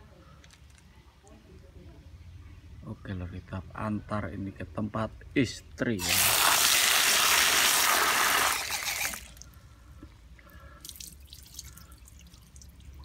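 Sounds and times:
tap water gushing into basin: 0:06.0 - 0:09.5
water sloshing and dripping: 0:10.6 - 0:13.0.

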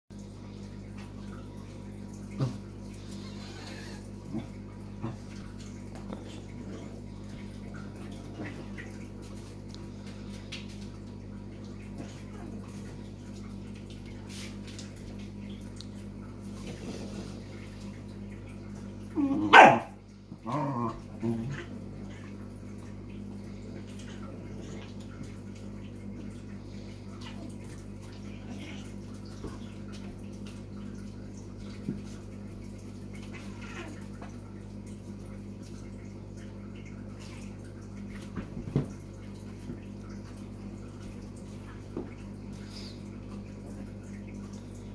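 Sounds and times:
low steady hum: 0:00.1 - 0:44.9
dog barking: 0:19.4 - 0:20.0.

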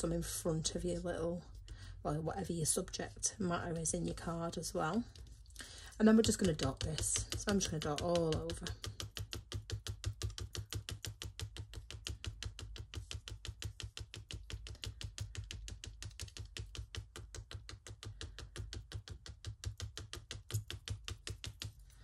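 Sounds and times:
pen tip tapping on card: 0:06.2 - 0:21.8.

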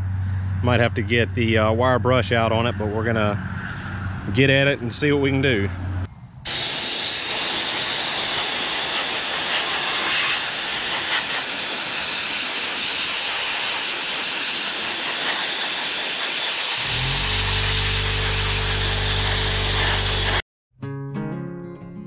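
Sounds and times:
soda blaster spraying air: 0:06.5 - 0:20.4
background music with low notes: 0:20.8 - 0:22.0.

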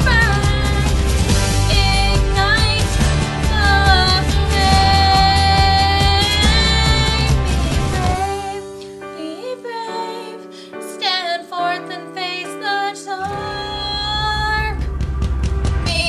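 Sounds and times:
pop song with singing: 0:00.0 - 0:14.9.

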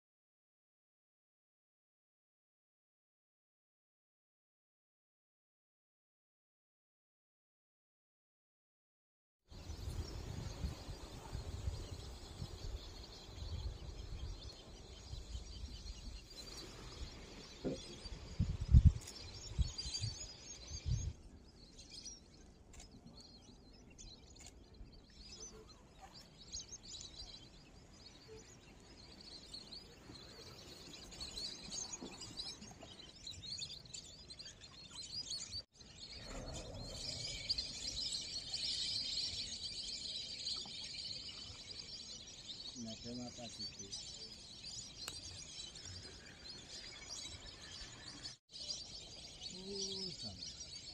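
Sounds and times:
birds chirping and calling: 0:09.6 - 0:50.9.

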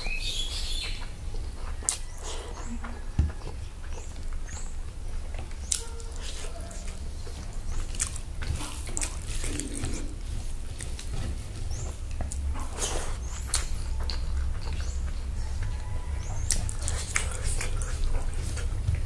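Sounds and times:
steady low hum: 0:00.0 - 0:19.0
chewing: 0:00.8 - 0:19.0
lip smacks: 0:16.3 - 0:19.0.

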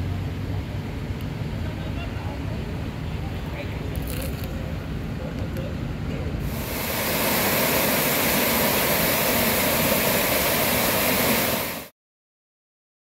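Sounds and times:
fountain water splashing: 0:06.4 - 0:11.9.

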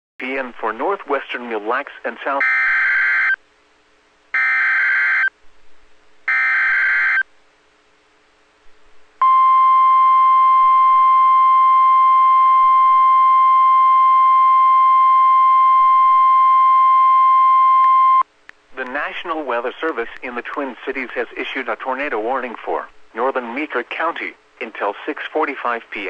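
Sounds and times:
steady warning alarm tone: 0:02.4 - 0:03.4, 0:04.4 - 0:05.3, 0:06.3 - 0:07.2, 0:09.2 - 0:18.2.

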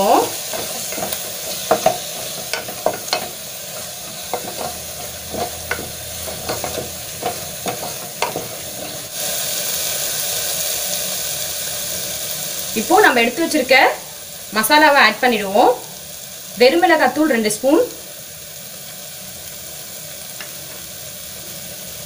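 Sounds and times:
food sizzling: 0:00.0 - 0:22.0
spatula scraping pot: 0:00.1 - 0:09.2.

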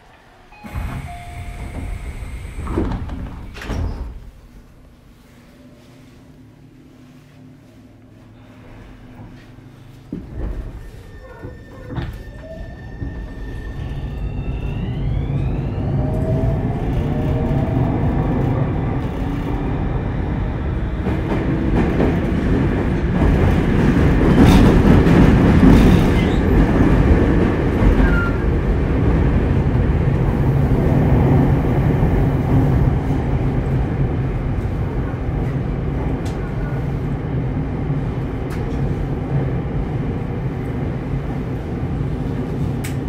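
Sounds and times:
wheels rumbling on rail: 0:00.0 - 0:43.0
electric train motors whining: 0:00.5 - 0:03.6.

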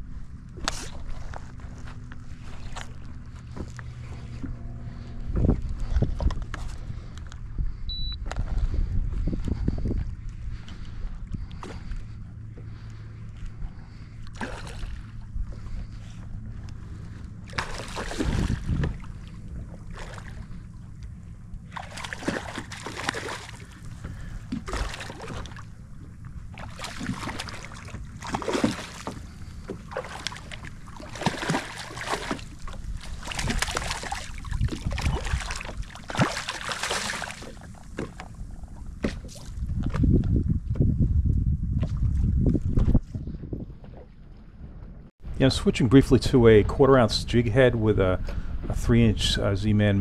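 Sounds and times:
wind noise: 0:03.5 - 0:12.2, 0:17.8 - 0:20.5, 0:32.5 - 0:36.2, 0:37.1 - 0:50.0
fish splashing at the surface: 0:14.3 - 0:15.1, 0:17.5 - 0:19.0, 0:21.7 - 0:23.8, 0:24.6 - 0:25.7, 0:26.5 - 0:38.3.

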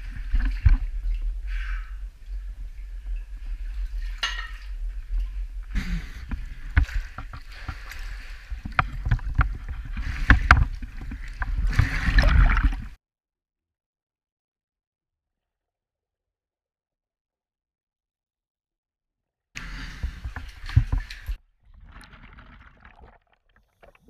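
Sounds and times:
water splashing and sloshing: 0:00.0 - 0:13.0, 0:19.6 - 0:24.0.

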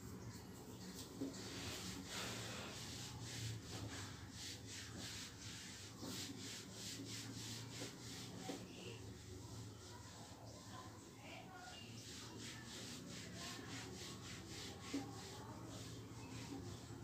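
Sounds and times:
duster rubbing on whiteboard: 0:00.2 - 0:17.0.

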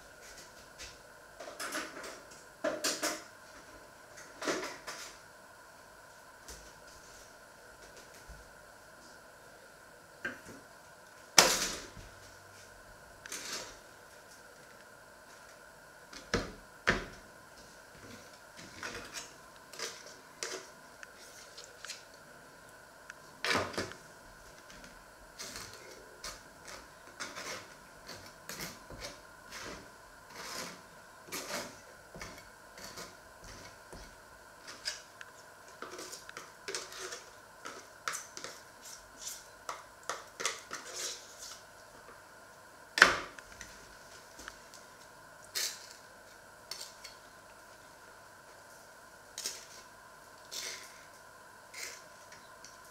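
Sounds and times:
knife scraping spread: 0:18.2 - 0:22.1, 0:25.4 - 0:34.1, 0:34.7 - 0:39.5, 0:40.4 - 0:41.7, 0:49.4 - 0:52.4.

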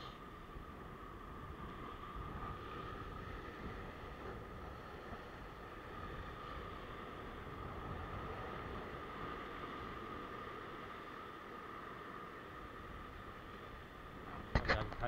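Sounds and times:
wind rumble on microphone: 0:00.0 - 0:15.0.

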